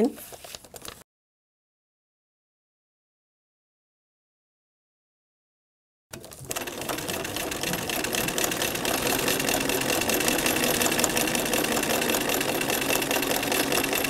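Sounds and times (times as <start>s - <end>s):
sewing machine needle clatter: 6.2s - 14.0s.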